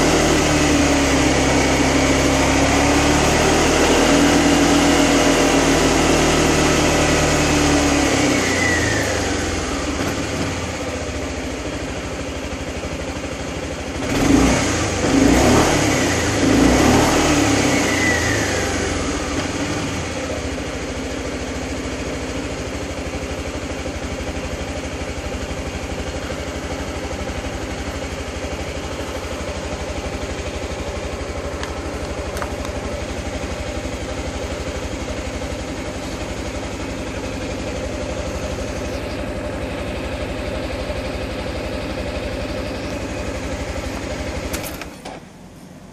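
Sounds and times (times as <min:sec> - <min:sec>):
scooter engine revving and idling: 0:00.0 - 0:45.9.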